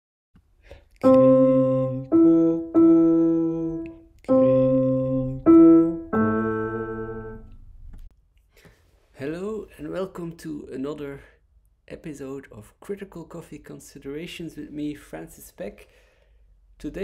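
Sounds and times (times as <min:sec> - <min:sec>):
piano-like keyboard notes: 0:01.0 - 0:07.7.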